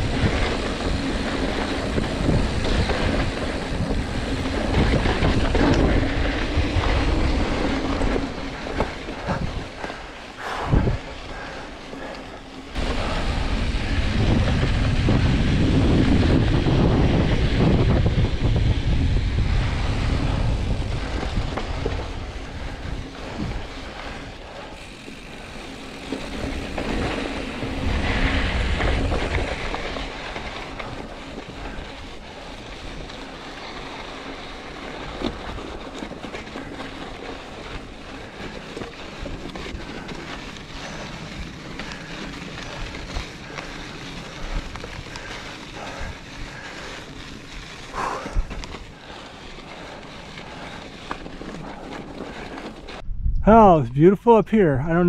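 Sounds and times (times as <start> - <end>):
tyres rolling over gravel: 0.0 - 53.0
bike rattling: 0.0 - 53.8
wind rushing over microphone: 0.0 - 55.0.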